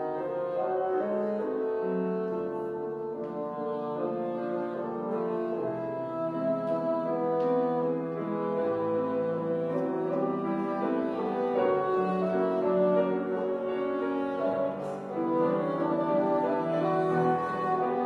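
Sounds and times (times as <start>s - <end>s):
bassoon melody: 0.0s - 18.0s
piano accompaniment: 0.0s - 18.0s.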